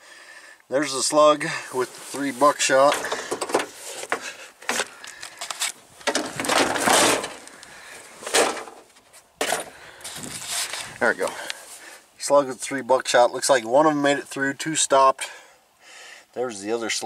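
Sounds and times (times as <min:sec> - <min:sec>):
rustle: 0:00.0 - 0:17.0
scuffing and handling noises: 0:01.8 - 0:11.8.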